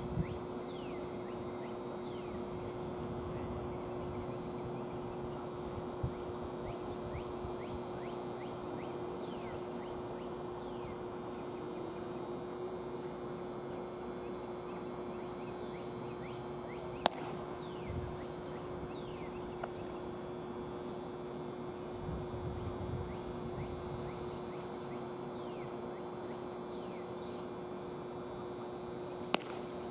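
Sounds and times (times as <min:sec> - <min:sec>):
steady low hum: 0:00.0 - 0:29.9
birds chirping: 0:14.3 - 0:20.0.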